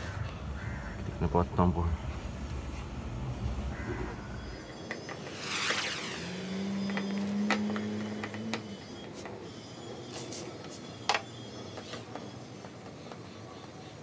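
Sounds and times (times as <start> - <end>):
steady low hum: 0.0 - 11.1.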